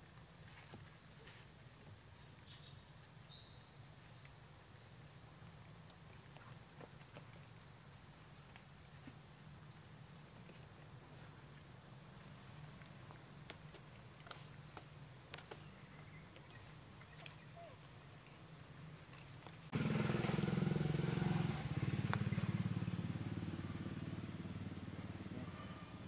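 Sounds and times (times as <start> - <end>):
high insect drone: 19.7 - 26.0.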